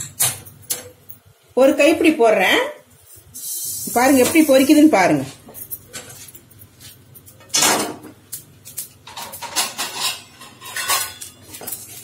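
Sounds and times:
pan and tongs clatter: 8.7s - 12.0s.

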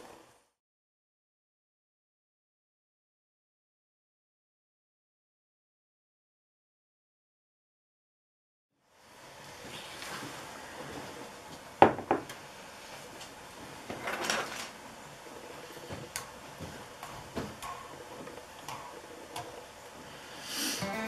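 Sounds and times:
knocks on stone workbench: 11.8s - 12.2s.

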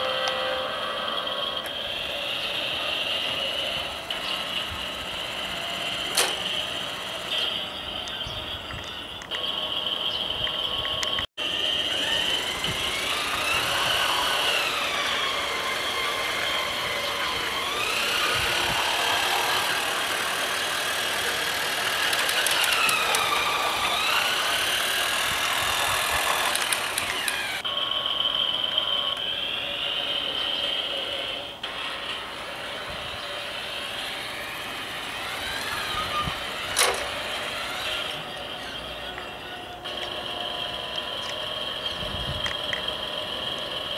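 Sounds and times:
toy train motor whining: 0.0s - 43.9s
sharp click: 36.7s - 37.1s.

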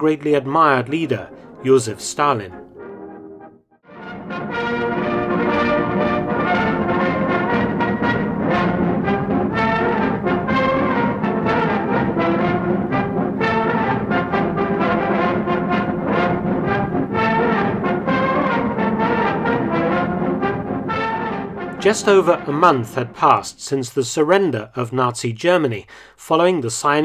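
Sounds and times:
brass band playing a march: 3.9s - 23.4s.

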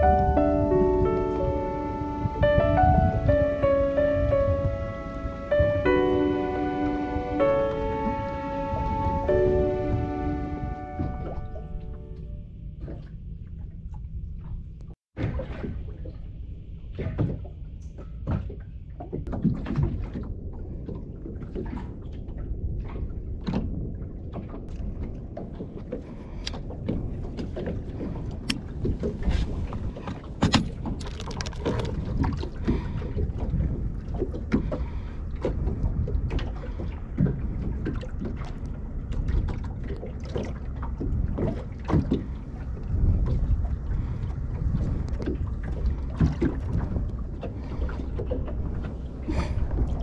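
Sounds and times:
wind rumble on microphone: 0.0s - 50.0s
knocks and clicks of tackle: 30.1s - 32.9s.

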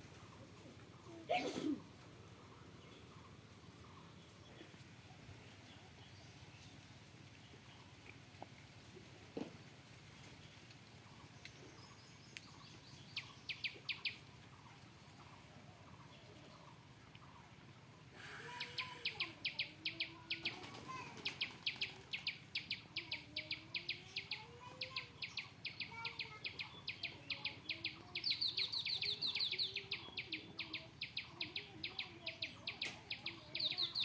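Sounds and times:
bird chirping rapidly: 12.5s - 14.2s, 18.5s - 34.0s.

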